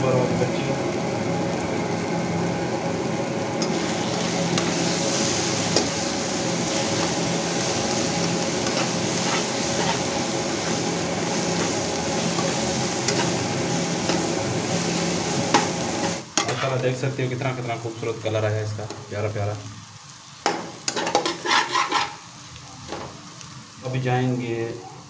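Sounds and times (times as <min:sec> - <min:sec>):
masala sizzling in a pan: 0:00.0 - 0:25.0
spatula stirring and scraping: 0:03.6 - 0:16.6, 0:20.8 - 0:22.2.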